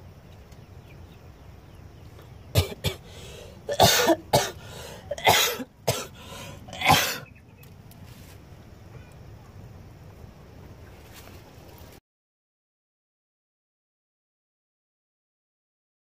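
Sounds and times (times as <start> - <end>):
person coughing: 2.6 - 3.1, 3.7 - 7.3.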